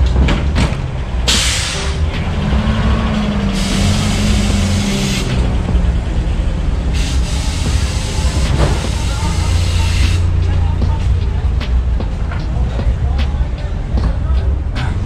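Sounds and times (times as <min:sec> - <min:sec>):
pickup truck engines rumbling: 0:00.0 - 0:15.0
loud air hiss: 0:01.2 - 0:02.4, 0:03.2 - 0:05.7, 0:06.8 - 0:10.5.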